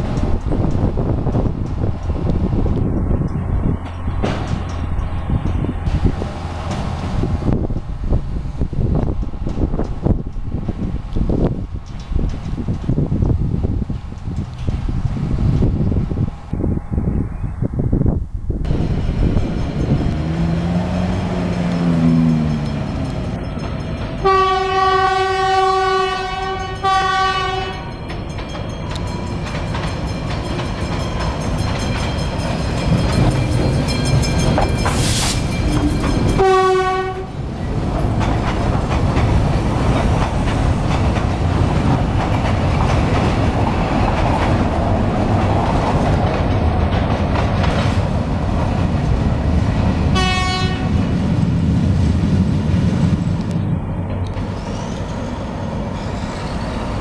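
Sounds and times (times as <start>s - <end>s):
train wheels clacking on rails: 0.0s - 7.9s, 9.0s - 15.0s, 18.7s - 51.6s
locomotive horn blasts: 24.2s - 28.0s, 35.0s - 37.4s, 50.2s - 51.0s.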